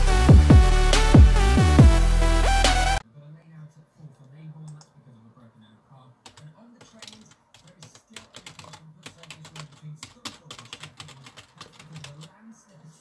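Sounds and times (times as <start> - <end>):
keyboard keys clicking: 6.2 - 12.3.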